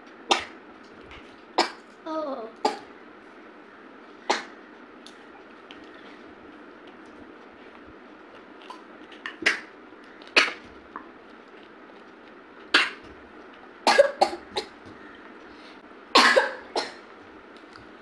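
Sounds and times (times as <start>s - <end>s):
girl coughing: 13.9s - 14.7s, 16.2s - 17.0s.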